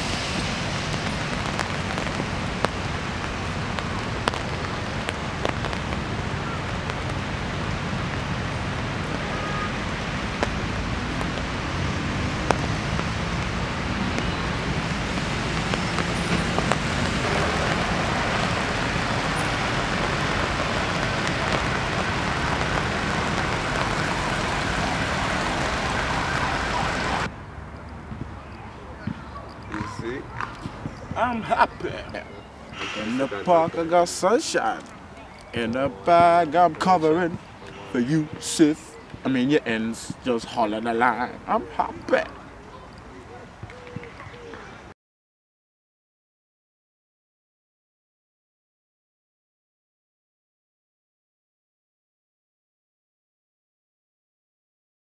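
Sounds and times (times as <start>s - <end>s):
heavy rain: 0.0s - 27.3s, 31.1s - 43.0s
traffic on wet roads: 0.0s - 44.9s.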